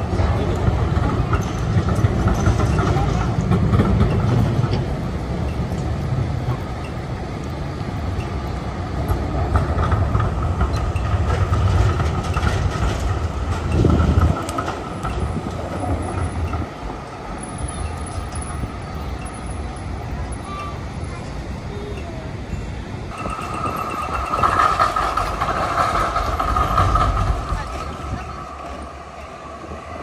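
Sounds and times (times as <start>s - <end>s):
street noise: 0.0s - 30.0s
train rumbling close by: 0.0s - 30.0s.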